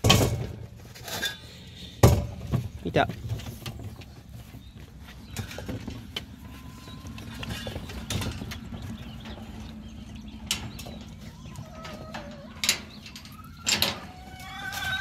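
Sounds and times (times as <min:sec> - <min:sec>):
metal gate latch clanking: 0:11.8 - 0:14.3.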